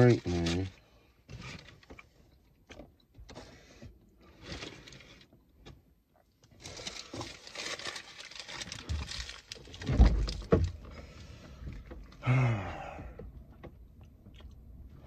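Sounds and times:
plastic bag rustling: 6.6 - 10.5.

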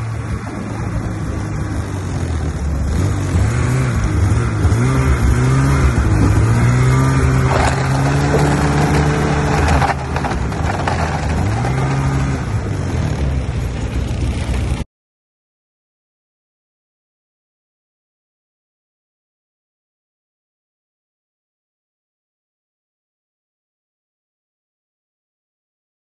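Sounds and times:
snowmobile engine running: 0.0 - 14.8.

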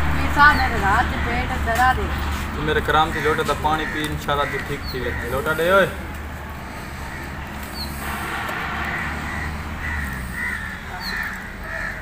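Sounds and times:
crows cawing: 2.6 - 12.0
steady low rumble: 6.0 - 11.6.

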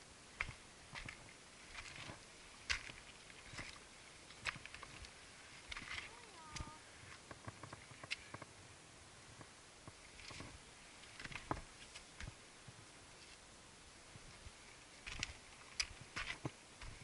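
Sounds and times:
footsteps on loose rock: 0.4 - 5.0, 15.0 - 17.0.

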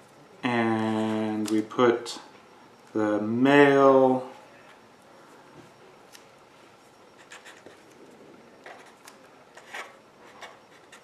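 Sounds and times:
marker scratching on paper: 7.2 - 7.8, 9.6 - 11.0.

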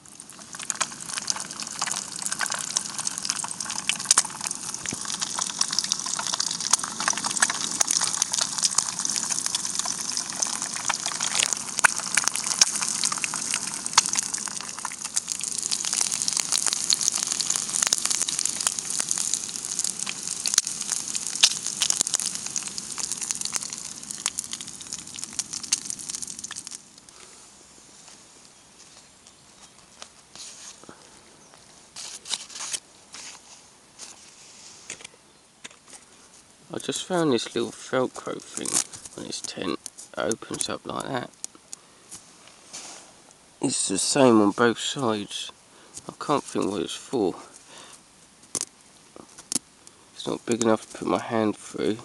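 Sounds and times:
eggs frying in oil: 0.0 - 27.3, 36.8 - 41.8.

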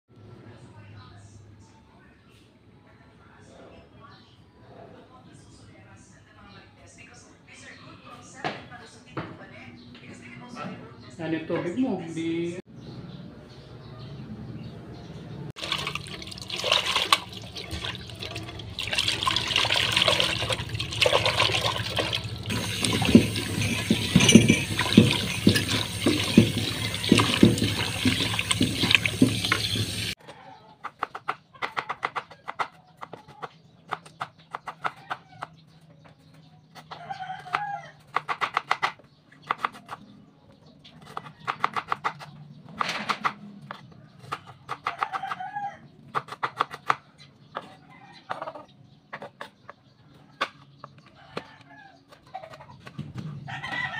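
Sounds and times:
tap water splashing into pot: 15.6 - 30.1.

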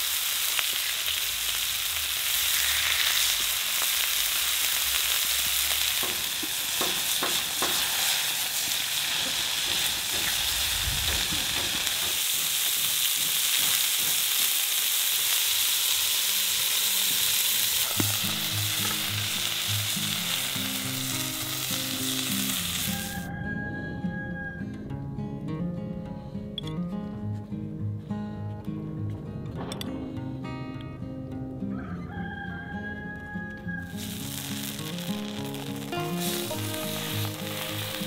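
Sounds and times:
burger patties sizzling on griddle: 0.0 - 23.3, 33.9 - 38.0
quiet background music: 23.6 - 38.0.

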